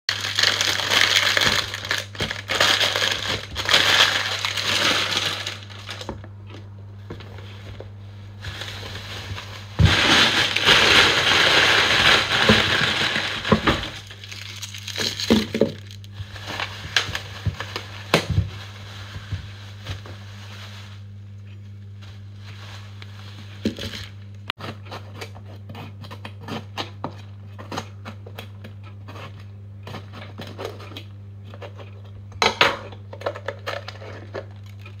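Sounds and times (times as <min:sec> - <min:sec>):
plastic bags crinkling: 0:00.1 - 0:06.2, 0:08.5 - 0:20.8
steady low hum: 0:00.1 - 0:24.8.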